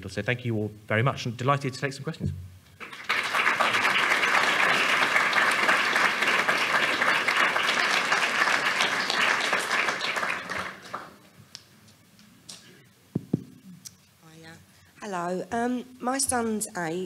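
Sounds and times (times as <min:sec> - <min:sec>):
audience applauding: 0:02.8 - 0:11.3.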